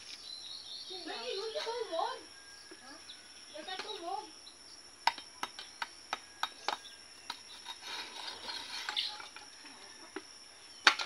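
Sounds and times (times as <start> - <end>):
knife scraping through coconut husk: 7.5 - 9.2.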